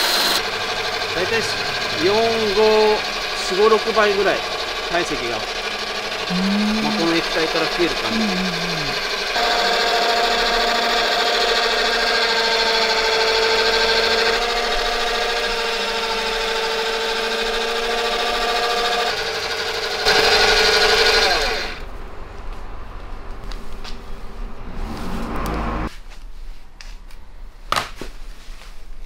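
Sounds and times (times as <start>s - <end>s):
stand mixer motor running: 0.0s - 21.8s.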